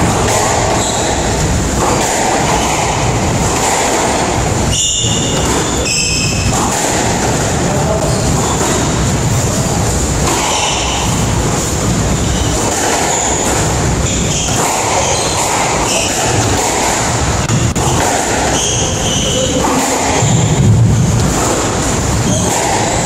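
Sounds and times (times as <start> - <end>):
loud steady rumbling: 0.0 - 23.0
high-pitched squeaks: 3.8 - 6.6, 12.1 - 16.6, 17.4 - 23.0.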